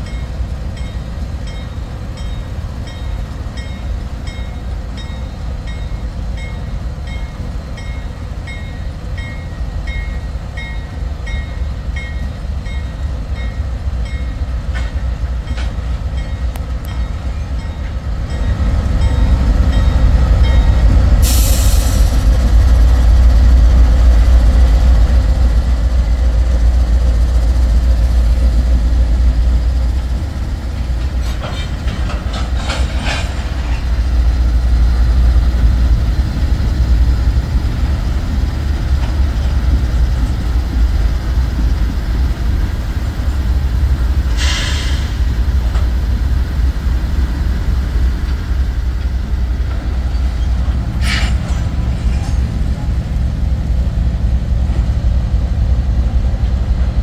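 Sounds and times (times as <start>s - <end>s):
diesel locomotives rumbling: 0.0s - 57.0s
short hiss: 21.2s - 22.2s, 44.3s - 45.3s
metallic clicks and clanks from wheels: 31.0s - 33.9s.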